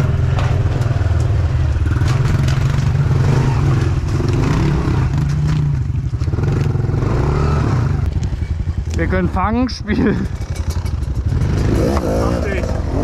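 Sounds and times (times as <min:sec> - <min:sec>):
bike clattering over rough ground: 0:00.0 - 0:06.8, 0:10.0 - 0:12.0
motorbike engine revving: 0:00.0 - 0:13.0.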